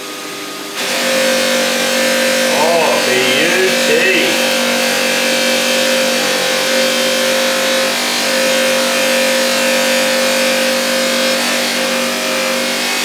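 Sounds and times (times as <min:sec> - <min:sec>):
buffing wheel humming: 0:04.4 - 0:12.6.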